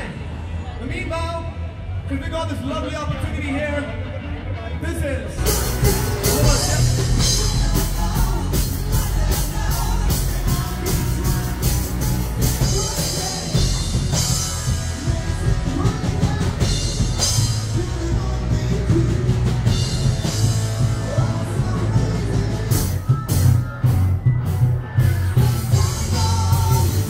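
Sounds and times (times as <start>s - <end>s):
loud rock music: 0.0s - 27.0s
person singing: 5.4s - 27.0s.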